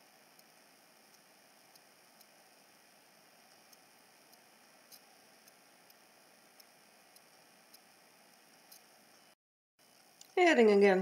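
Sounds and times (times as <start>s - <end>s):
faint steady hiss: 0.0s - 11.0s
soft faint ticks: 0.3s - 0.5s, 1.1s - 2.4s, 3.5s - 6.0s, 6.6s - 9.2s.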